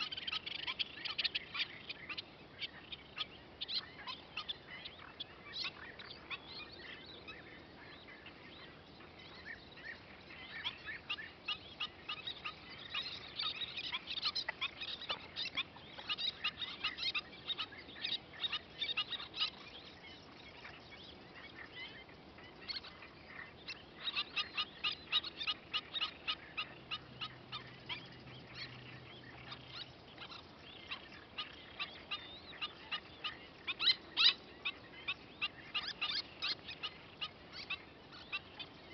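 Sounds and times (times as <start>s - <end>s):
terns chirping: 0.0s - 38.9s.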